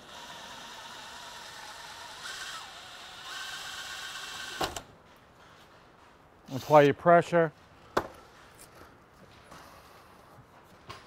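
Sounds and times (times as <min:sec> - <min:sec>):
cordless drill drilling rivet: 0:00.0 - 0:04.9.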